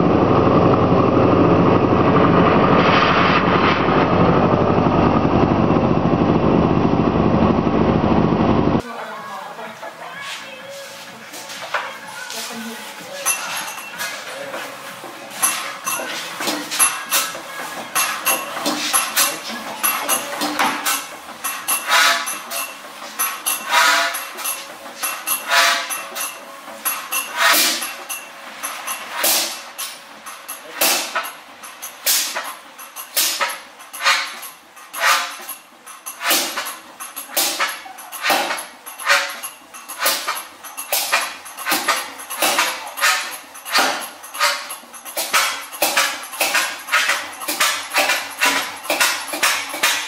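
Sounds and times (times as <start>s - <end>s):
diesel engine clattering: 0.0s - 8.8s.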